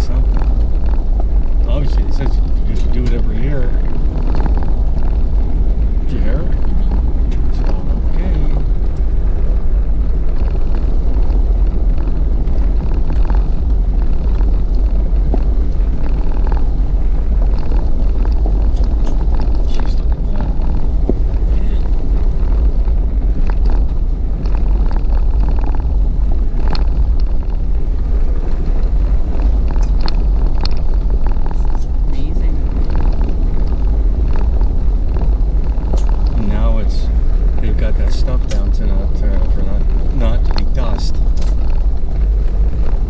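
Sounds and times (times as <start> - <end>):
vehicle engine and tyres rumbling: 0.0 - 43.0.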